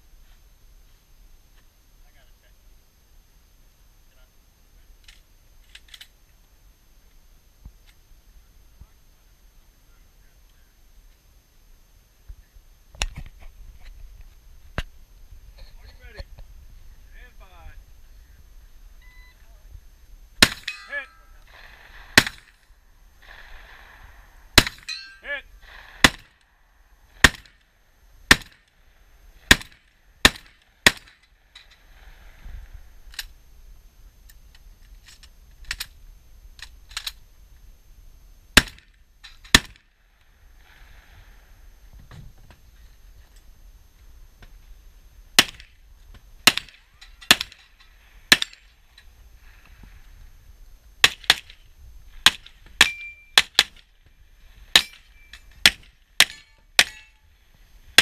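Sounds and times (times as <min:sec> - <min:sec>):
gunshots: 0:20.4 - 0:22.6, 0:23.2 - 0:26.4, 0:27.2 - 0:27.6, 0:28.3 - 0:28.6, 0:29.4 - 0:31.2, 0:38.6 - 0:38.9, 0:39.5 - 0:39.8, 0:46.4 - 0:47.6, 0:52.2 - 0:53.8.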